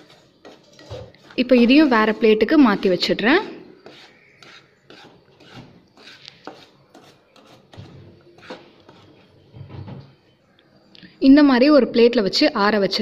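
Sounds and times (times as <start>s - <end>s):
wooden spatula scraping pan: 0.0s - 9.9s.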